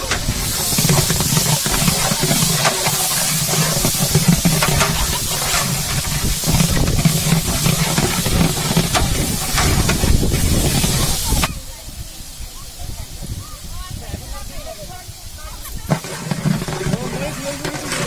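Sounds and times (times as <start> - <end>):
spatula scraping metal pot: 0.0 - 11.5, 15.8 - 18.0
onions sizzling in hot oil: 0.0 - 18.0.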